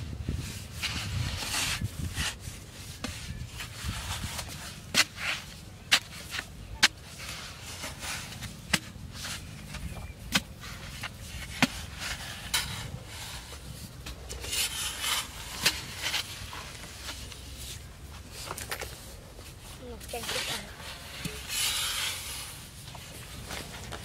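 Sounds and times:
earth rustling: 0:00.0 - 0:24.0
digging tool striking soil: 0:04.2 - 0:16.3.

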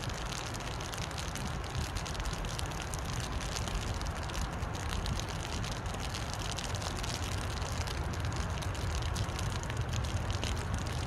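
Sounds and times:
rain pattering on river: 0:00.0 - 0:11.0.

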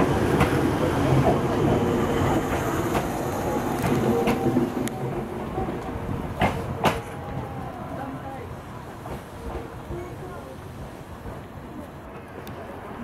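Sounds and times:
train wheels clattering: 0:00.0 - 0:07.2.

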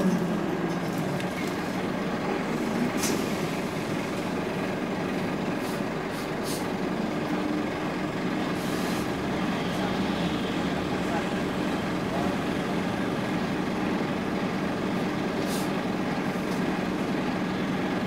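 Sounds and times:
bus diesel engine idling: 0:00.0 - 0:18.0
short air hisses: 0:15.4 - 0:15.7.

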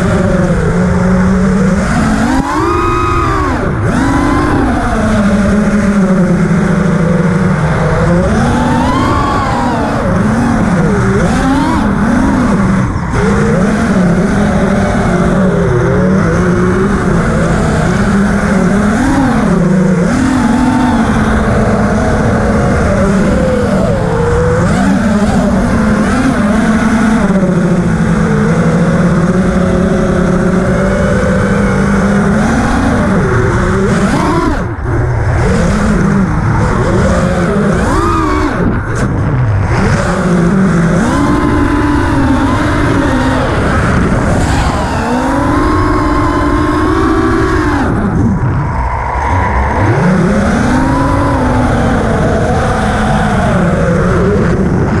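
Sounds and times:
drone motors and propellers whining: 0:00.0 - 0:55.0.

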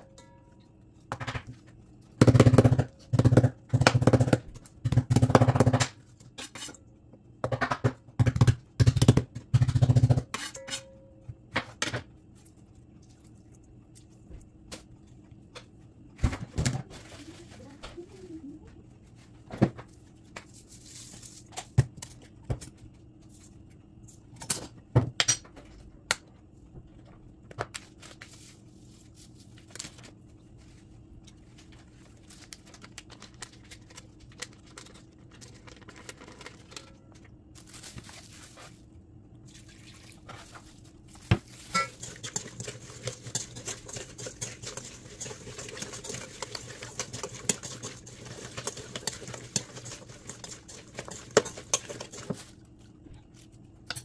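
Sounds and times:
low steady hum: 0:00.0 - 0:54.0
liquid being poured: 0:39.4 - 0:40.3
hands mixing wet marinade: 0:39.4 - 0:53.6.

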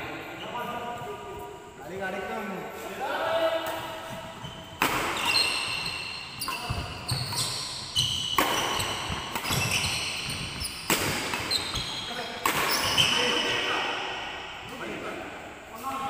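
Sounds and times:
rackets hitting shuttlecock: 0:03.6 - 0:13.6
sneakers squeaking on wooden court: 0:03.7 - 0:13.8.

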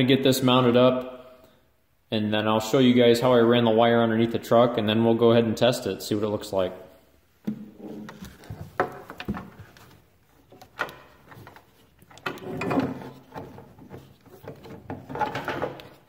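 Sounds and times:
plastic tubing rustling and scraping: 0:07.4 - 0:16.0.

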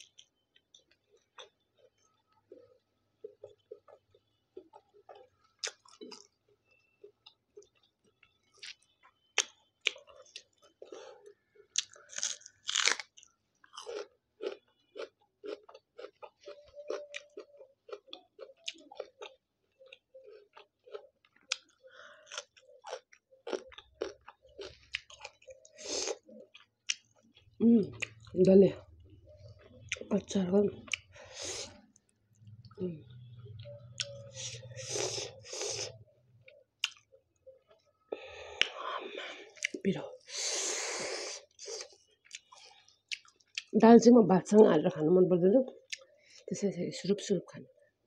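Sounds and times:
crunch: 0:00.0 - 0:28.3
person chewing food: 0:00.0 - 0:43.7, 0:45.8 - 0:46.4.

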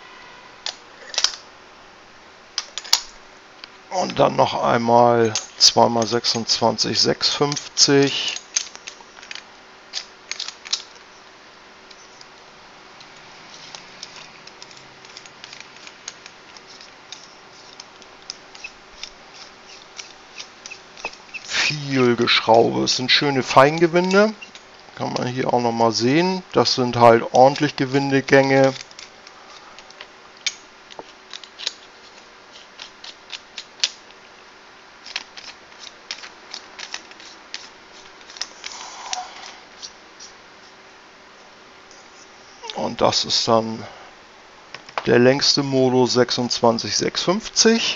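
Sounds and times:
metal tubes clicking and scraping: 0:13.0 - 0:25.3, 0:27.3 - 0:34.1, 0:35.0 - 0:40.7.

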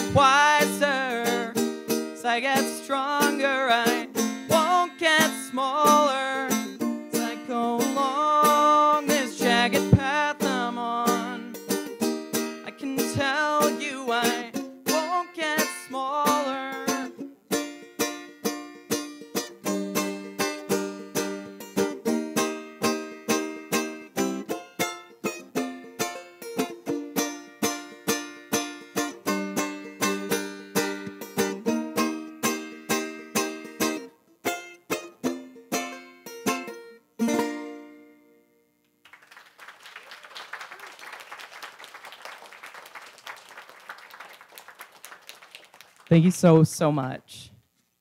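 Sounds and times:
banjo picking: 0:00.0 - 0:38.6
audience applauding: 0:39.0 - 0:46.3.

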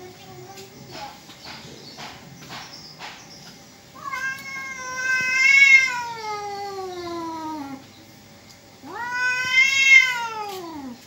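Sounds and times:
cat yowling: 0:04.0 - 0:07.8, 0:08.8 - 0:11.0.

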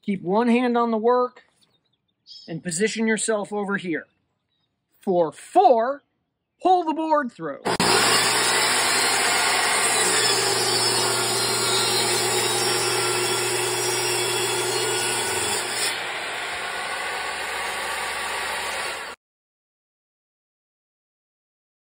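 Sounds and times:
table saw cutting wood: 0:07.7 - 0:19.2.

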